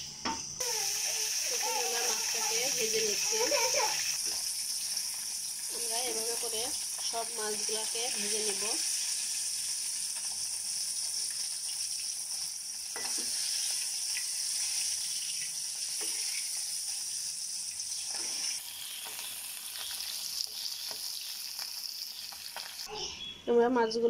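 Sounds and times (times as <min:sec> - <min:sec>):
fish sizzling in hot oil: 0:00.6 - 0:22.9
metal spatula scraping and clinking: 0:12.9 - 0:16.6, 0:18.0 - 0:21.3.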